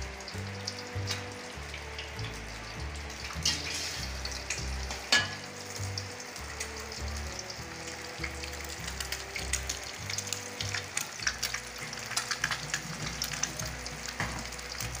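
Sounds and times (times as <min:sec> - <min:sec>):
background music: 0:00.0 - 0:15.0
food frying in hot oil: 0:00.0 - 0:15.0.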